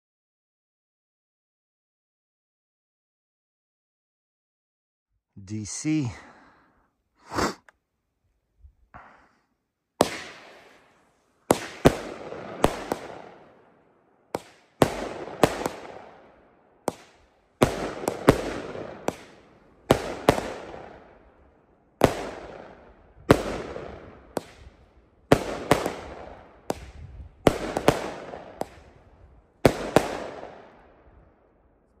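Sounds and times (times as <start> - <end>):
firework bangs with echo: 10.0 - 10.8, 11.5 - 13.6, 14.3 - 21.2, 22.0 - 29.0, 29.6 - 30.8.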